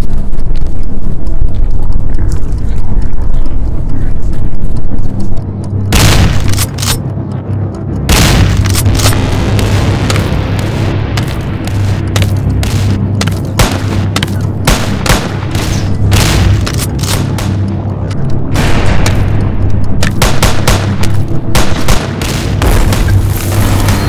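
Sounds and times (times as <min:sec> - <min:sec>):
steady low hum: 0:00.0 - 0:24.0
gunshots in rapid bursts: 0:08.1 - 0:17.8, 0:18.5 - 0:24.0.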